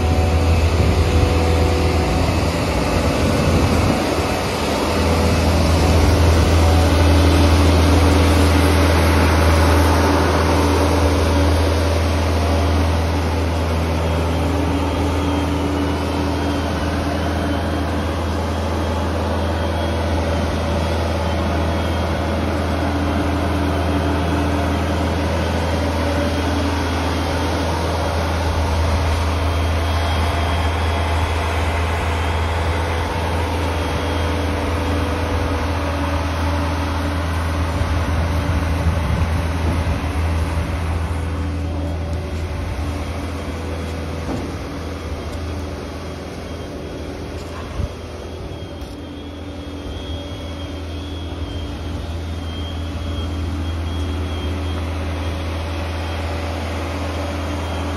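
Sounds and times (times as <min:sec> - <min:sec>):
travel lift engine droning: 0:00.0 - 0:57.9.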